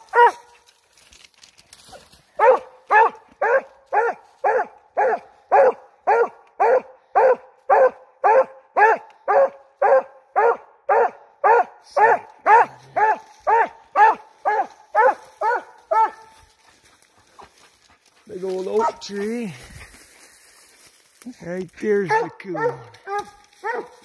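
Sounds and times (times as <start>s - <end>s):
dog barking: 0.0s - 0.5s, 2.4s - 16.4s, 18.8s - 19.0s, 22.1s - 24.0s.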